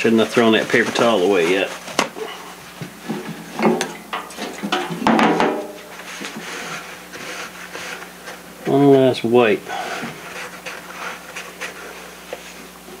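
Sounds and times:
paper towel rubbing wood: 0.0 - 3.5, 5.9 - 9.0, 9.6 - 13.0.

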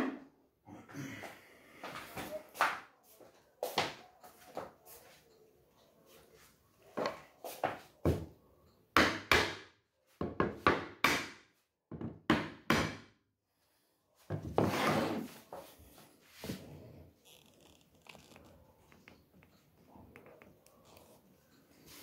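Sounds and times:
mallet knocking wood panels: 9.0 - 9.7, 10.3 - 13.1
wood scraping on wood: 14.4 - 19.1.

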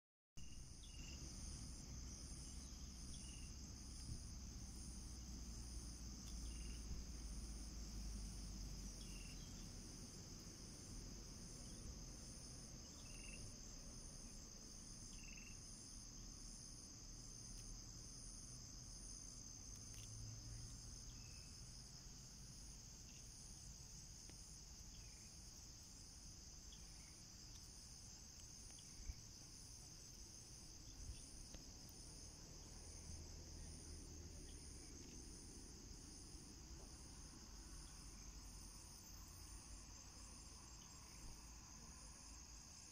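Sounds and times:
insects buzzing drone: 0.4 - 42.9
pulsing insect trill: 0.4 - 42.9.

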